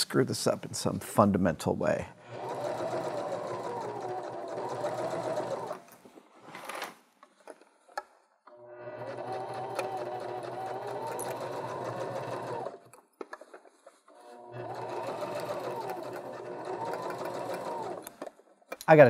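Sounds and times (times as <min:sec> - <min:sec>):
sewing machine stitching: 0:02.3 - 0:05.9, 0:08.5 - 0:13.0, 0:13.8 - 0:18.4.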